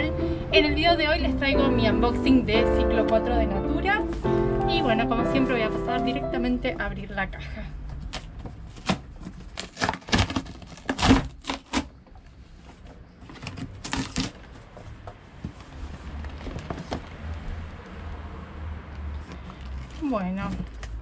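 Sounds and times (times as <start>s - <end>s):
cardboard box being opened: 8.0s - 11.9s.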